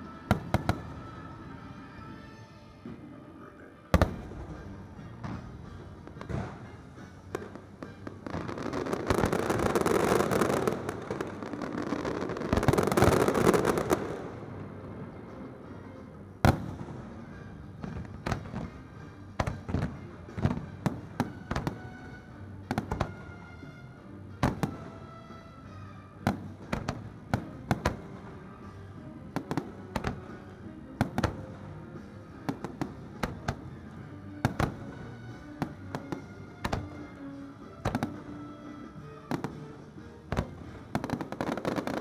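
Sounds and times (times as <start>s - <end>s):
music playing: 0.0s - 42.0s
fireworks bursting: 4.0s - 14.5s, 16.4s - 23.4s, 24.4s - 38.5s, 40.3s - 42.0s.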